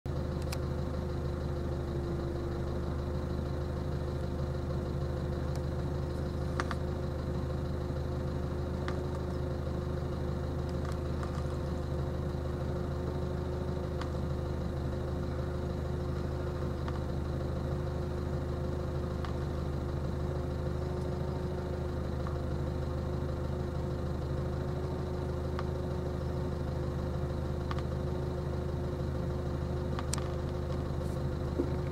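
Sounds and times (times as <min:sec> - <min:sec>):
engine idling hum: 0:00.1 - 0:31.9.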